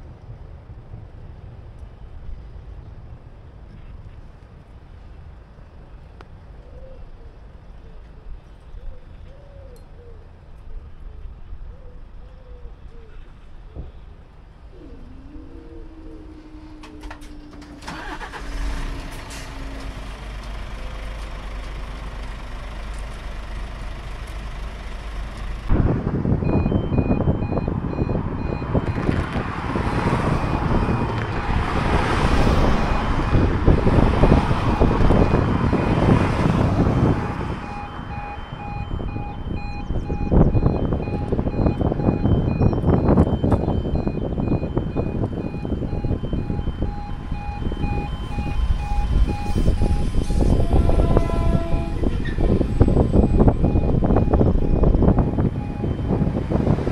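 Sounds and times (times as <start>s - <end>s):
road noise from passing cars: 0.0s - 56.9s
diesel engine idling: 14.5s - 56.9s
level crossing alarm beeping: 15.4s - 20.0s, 26.4s - 56.9s.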